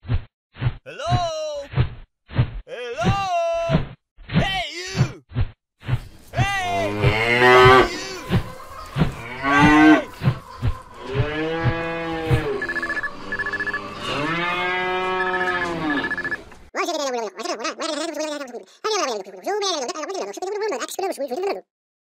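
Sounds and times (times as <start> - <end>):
cows mooing: 6.6 - 16.5.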